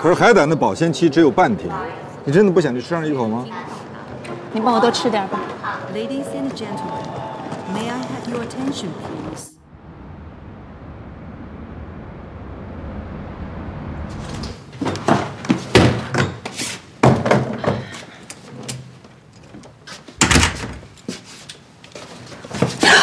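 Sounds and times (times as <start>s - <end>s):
background hum: 5.3s - 15.7s
front door opening and shutting: 19.5s - 21.0s.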